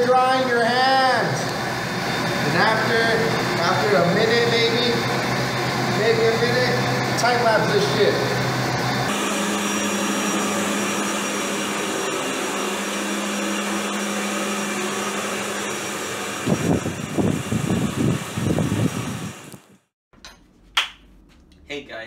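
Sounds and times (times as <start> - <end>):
hand dryer blowing air: 0.0 - 19.9
hand dryer hum: 0.0 - 19.9.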